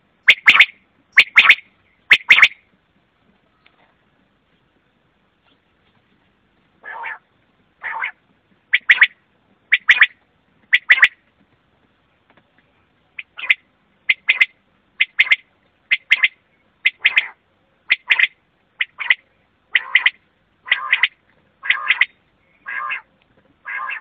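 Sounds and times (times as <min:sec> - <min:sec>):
quail calling: 0:00.2 - 0:02.6, 0:06.8 - 0:11.2, 0:13.2 - 0:24.0.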